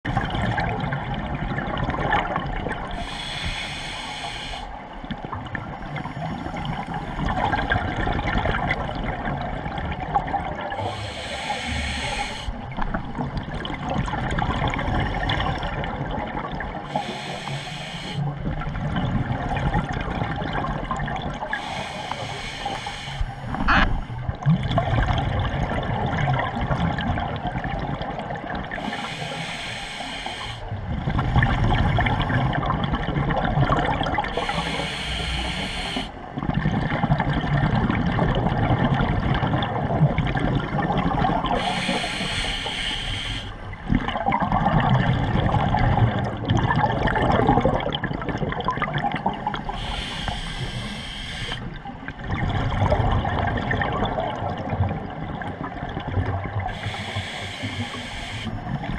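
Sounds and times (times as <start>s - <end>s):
exhaled bubbles: 0.0s - 58.9s
regulator hissing inhales: 3.0s - 4.7s, 10.8s - 12.6s, 16.9s - 18.3s, 21.6s - 23.6s, 28.8s - 30.7s, 34.4s - 36.2s, 41.6s - 43.6s, 49.8s - 51.6s, 56.7s - 58.6s.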